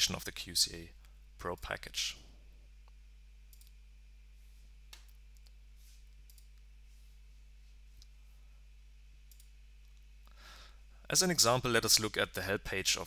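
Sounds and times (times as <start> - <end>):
low steady hum: 0.0 - 13.0
computer mouse clicks: 3.5 - 3.8, 6.2 - 6.7, 9.3 - 10.0.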